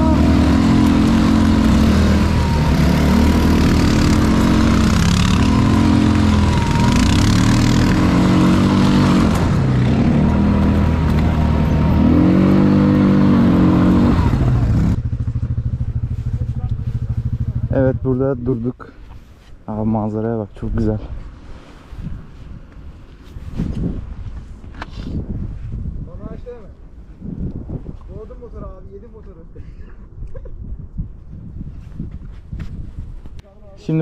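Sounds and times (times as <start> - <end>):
quad bike engine revving: 0.0 - 18.0.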